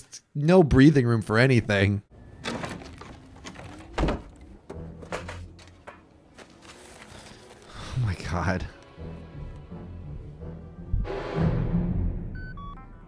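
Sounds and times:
knocks and handling noises: 0:02.4 - 0:07.6.

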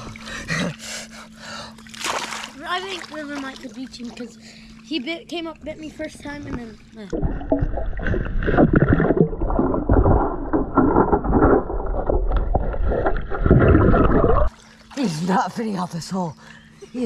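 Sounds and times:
muffled water sloshing: 0:01.8 - 0:05.1, 0:06.1 - 0:15.6.

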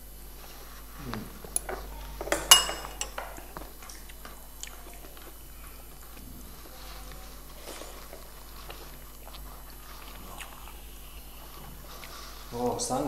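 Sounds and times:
metal spoons clinking on dishes: 0:01.6 - 0:03.5.

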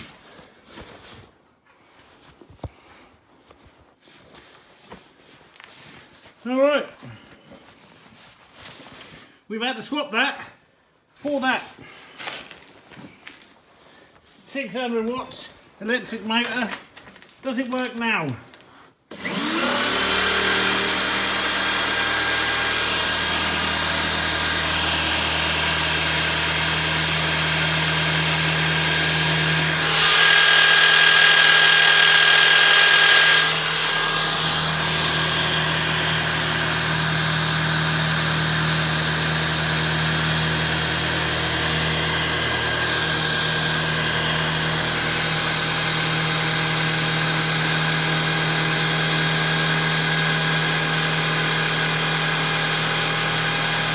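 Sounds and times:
electric drill driving pump: 0:19.1 - 0:53.9.

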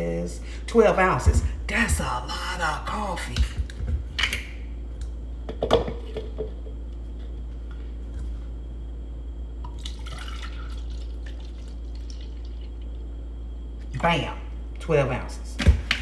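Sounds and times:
cup knocking on counter: 0:05.5 - 0:06.5
coffee pouring into cup: 0:09.6 - 0:13.0.

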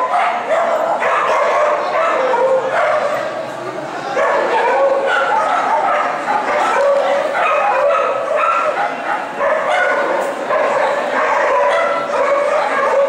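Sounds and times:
many dogs barking and yipping: 0:00.0 - 0:13.0
people's voices: 0:00.0 - 0:13.0.

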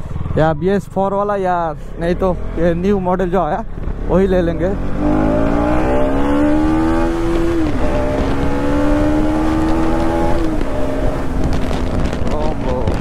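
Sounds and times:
motorcycle engine accelerating: 0:00.0 - 0:13.0
wind noise on microphone: 0:05.0 - 0:13.0.

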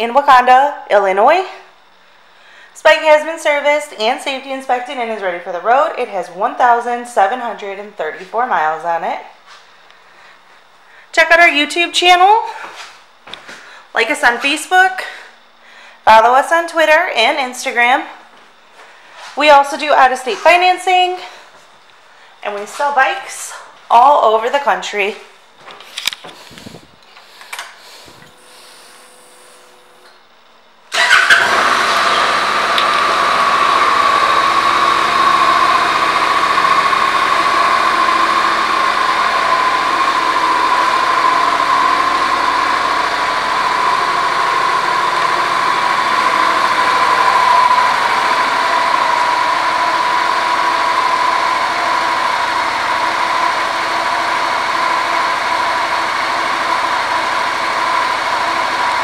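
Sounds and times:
motorcycle engine starting and idling: 0:30.9 - 0:59.0.

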